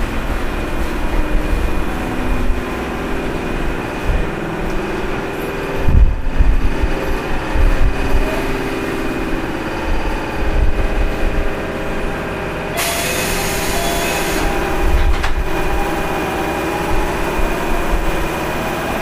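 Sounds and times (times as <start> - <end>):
train wheels rumbling on rails: 0.0 - 19.0
loud hiss: 12.7 - 19.0.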